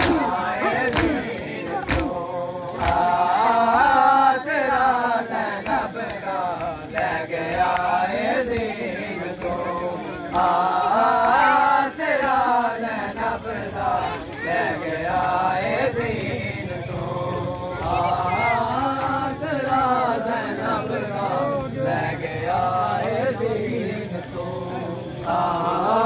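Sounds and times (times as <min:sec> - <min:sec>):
hand slaps on chest: 0:00.0 - 0:00.3, 0:01.8 - 0:02.2, 0:02.8 - 0:03.1
people chanting: 0:00.0 - 0:26.0.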